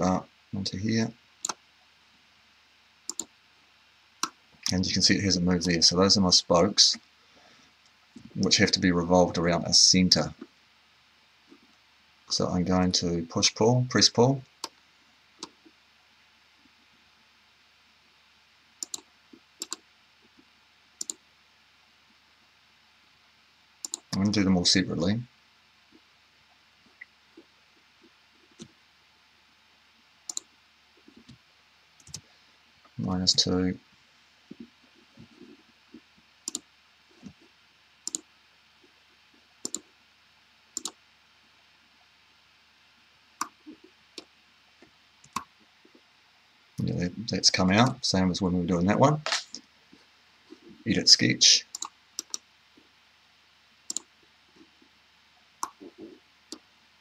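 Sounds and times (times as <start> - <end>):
faint room hiss: 0.0 - 57.0
computer mouse clicks: 3.1 - 3.3, 18.8 - 19.8, 21.0 - 21.2, 23.8 - 24.2, 30.3 - 30.5, 32.0 - 32.2, 36.4 - 37.4, 38.0 - 38.3, 39.6 - 39.9, 40.8 - 41.0, 45.2 - 45.5, 51.7 - 52.4, 53.9 - 54.1.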